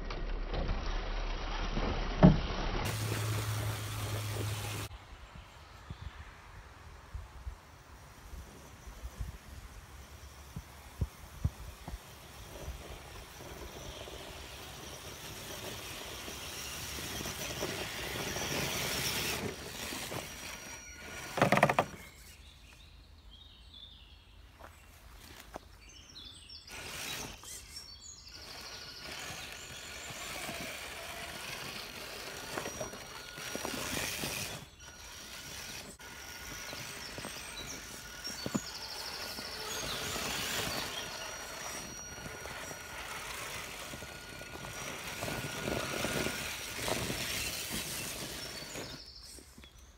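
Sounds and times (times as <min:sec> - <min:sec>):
motor and gears whining: 0:02.8 - 0:04.9, 0:10.5 - 0:22.4, 0:26.6 - 0:49.4
tyres over leaf litter: 0:02.8 - 0:04.9, 0:26.6 - 0:49.8.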